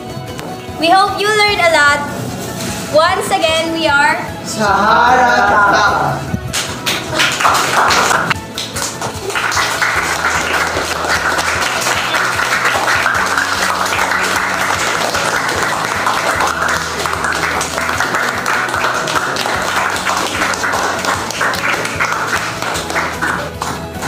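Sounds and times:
background music: 0.0s - 24.0s
people clapping: 6.4s - 24.0s.

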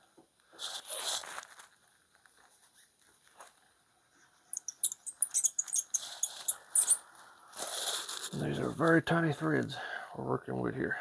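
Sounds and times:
small sharp clicks and crinkles: 0.4s - 3.7s.

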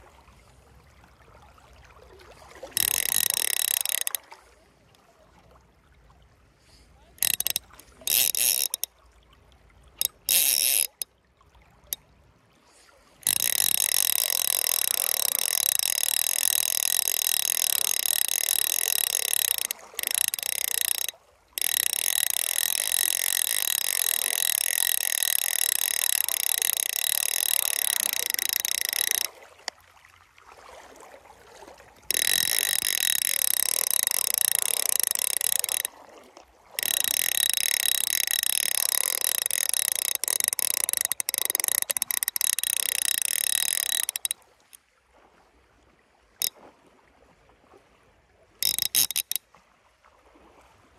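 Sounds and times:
fishing reel drag buzzing: 2.7s - 4.3s, 7.2s - 8.9s, 10.0s - 11.1s, 13.2s - 29.4s, 32.0s - 36.0s, 36.8s - 44.4s, 48.6s - 49.4s.

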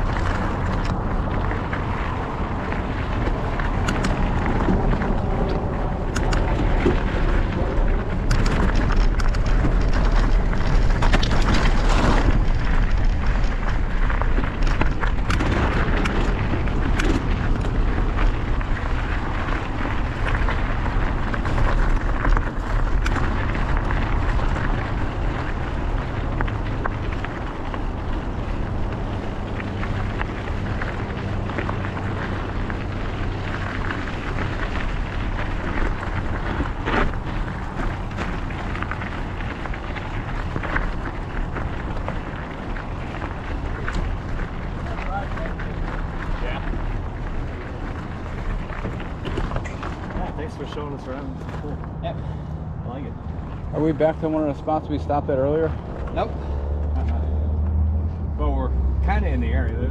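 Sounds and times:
bike clicks and rattles: 0.0s - 59.9s
low rumble: 0.0s - 59.9s
tyres crunching over gravel: 0.0s - 59.9s
wind buffeting microphone: 0.0s - 59.9s.

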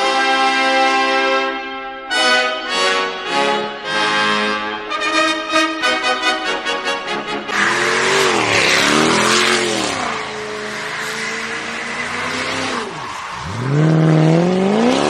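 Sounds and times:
car engine revving: 7.4s - 15.0s
tyres screeching: 7.5s - 15.0s.

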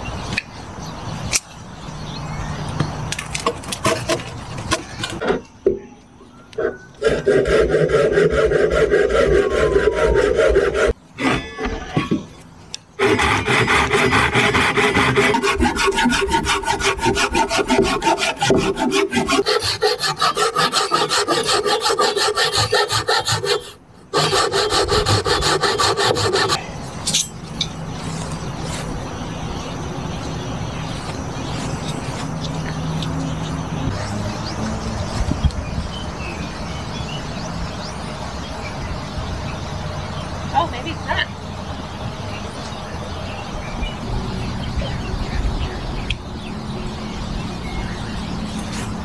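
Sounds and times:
hand saw cutting wood: 3.4s - 5.2s, 6.6s - 11.5s, 13.0s - 26.6s.

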